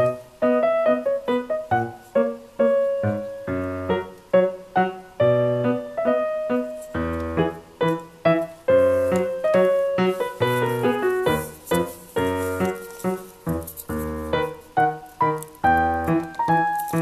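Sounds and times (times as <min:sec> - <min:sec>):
light piano melody: 0:00.0 - 0:17.0.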